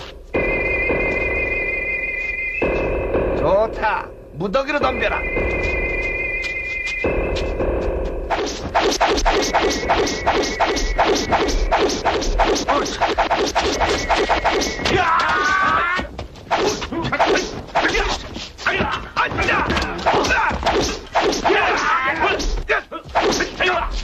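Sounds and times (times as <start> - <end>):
punch and kick whacks and thuds: 16.5 - 23.8.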